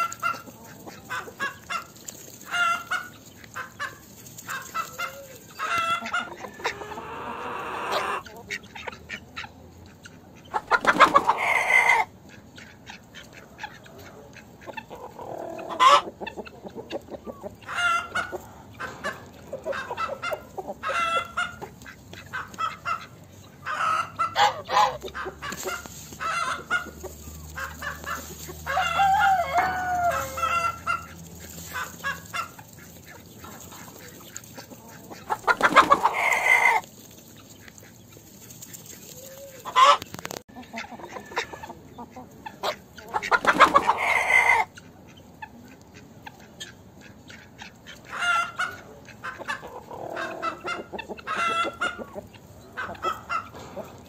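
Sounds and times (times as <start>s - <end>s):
chickens clucking: 0.0s - 54.0s
rooster crowing: 28.6s - 30.8s.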